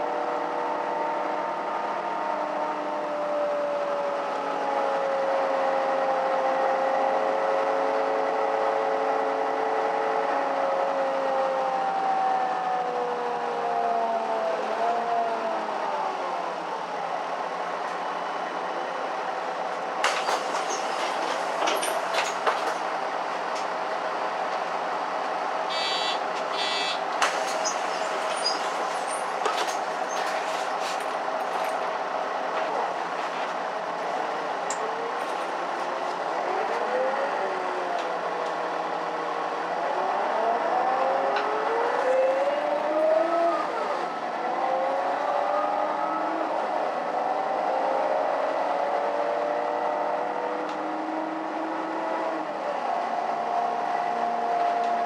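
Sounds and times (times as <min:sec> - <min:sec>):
bus engine and gearbox whine: 0:16.0 - 0:39.9
rattles and clicks: 0:20.0 - 0:22.9, 0:26.3 - 0:31.9.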